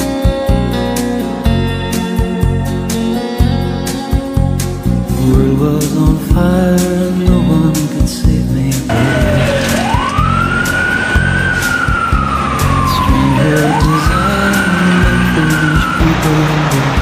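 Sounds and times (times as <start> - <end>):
fire engine siren wailing: 8.9 - 17.0.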